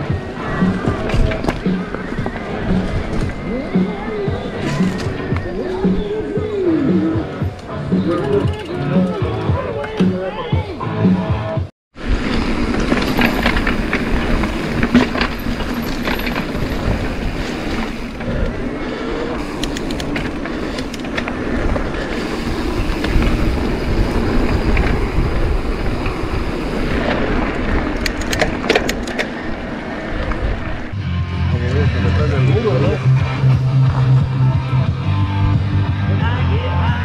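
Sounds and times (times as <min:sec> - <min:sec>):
bike rattling over bumps: 0:00.0 - 0:06.5, 0:12.0 - 0:30.9
tyre noise on dirt: 0:00.0 - 0:10.8, 0:12.0 - 0:31.0
wind rush on microphone: 0:12.0 - 0:31.0.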